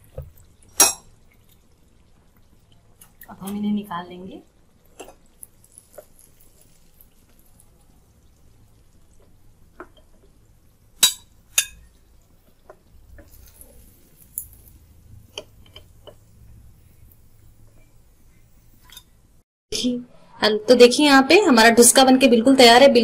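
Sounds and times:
oil sizzling: 0.0s - 19.4s
spatula scraping frying pan: 5.0s - 7.5s, 11.0s - 19.2s.

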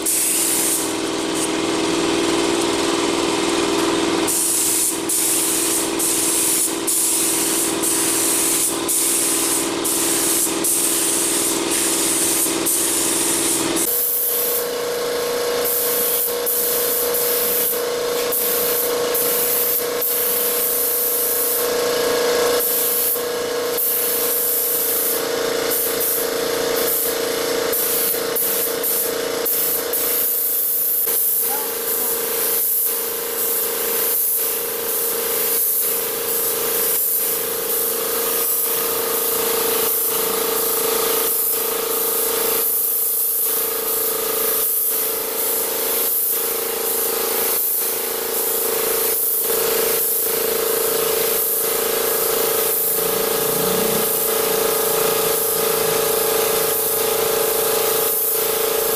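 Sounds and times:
spray gun hissing: 0.0s - 1.6s, 4.2s - 21.8s, 22.4s - 58.9s
steady hum: 51.8s - 56.7s.

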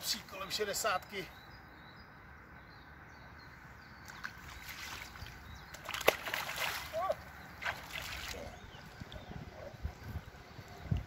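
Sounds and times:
fish splashing in shallow water: 4.0s - 9.0s
sharp water slap: 4.1s - 8.4s.

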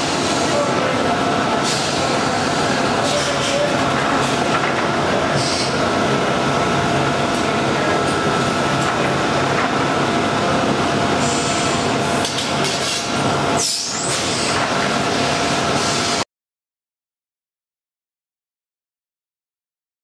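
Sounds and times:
pneumatic cutter machine running: 0.0s - 6.2s, 10.9s - 16.2s.

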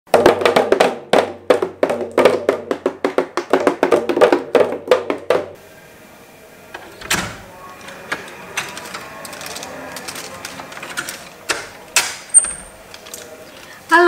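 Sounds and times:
toy drums beaten with sticks: 0.1s - 5.6s.

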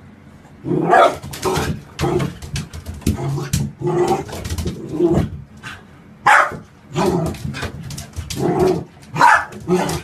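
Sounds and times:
puppy barking: 0.8s - 1.2s, 6.2s - 6.6s, 9.1s - 10.0s.

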